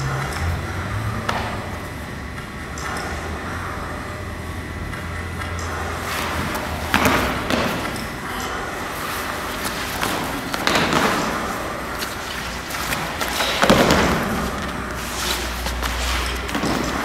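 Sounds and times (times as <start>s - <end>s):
feet sliding on floor: 5.7s - 17.0s.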